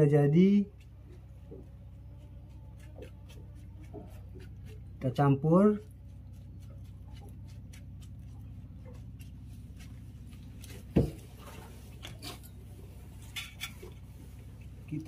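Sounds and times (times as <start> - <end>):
stalk stirring sambal: 0.0 - 15.0
steady low hum: 0.0 - 15.0
stalk knocking on plate: 10.8 - 11.3.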